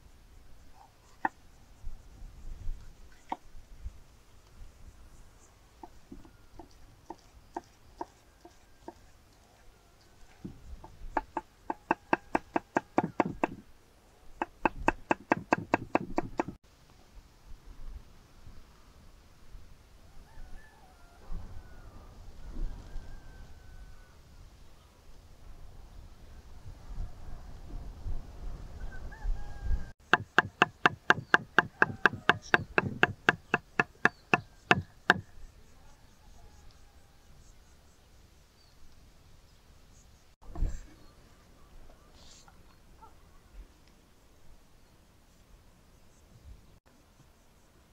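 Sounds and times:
knife chopping on wooden board: 0:11.2 - 0:13.6, 0:14.4 - 0:16.6, 0:30.1 - 0:35.2.

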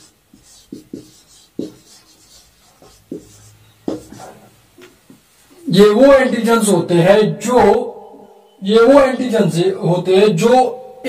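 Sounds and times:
pen scratching: 0:00.0 - 0:04.4.

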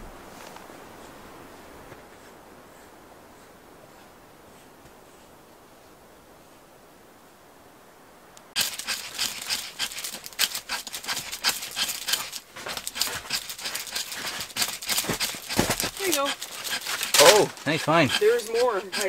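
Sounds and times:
knife scraping wood: 0:08.6 - 0:19.0.

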